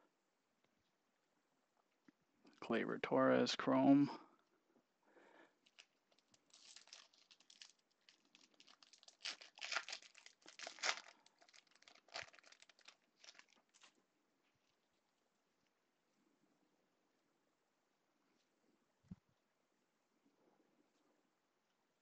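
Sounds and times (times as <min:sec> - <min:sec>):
foil wrapper crinkling and tearing: 0:05.6 - 0:14.0.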